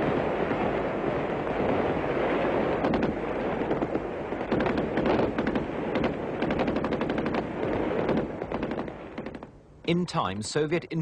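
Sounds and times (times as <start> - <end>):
rumbling gunfire din: 0.0 - 9.5
sharp gunshots: 2.5 - 9.5.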